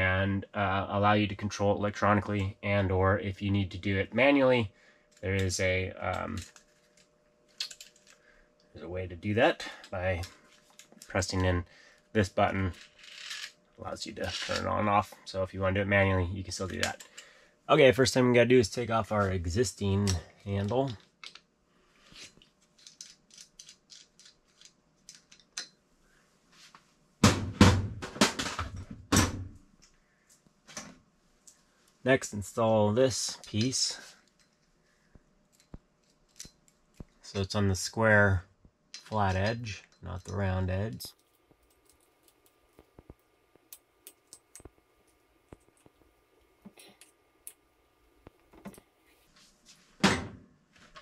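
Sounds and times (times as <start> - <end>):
loud knocks and thumps: 27.2 - 29.5.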